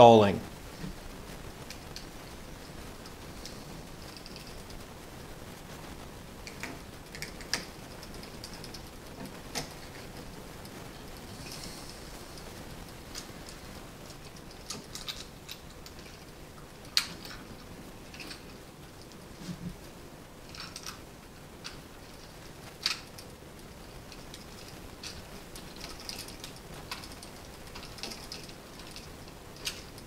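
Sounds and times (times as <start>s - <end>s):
small clicks and taps: 6.4s - 10.8s.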